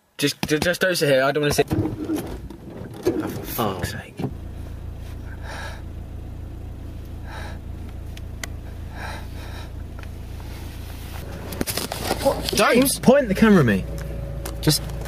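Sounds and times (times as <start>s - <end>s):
car engine humming inside cabin: 1.5s - 15.0s
person breathing heavily: 5.2s - 5.9s, 7.2s - 7.8s, 8.6s - 10.0s.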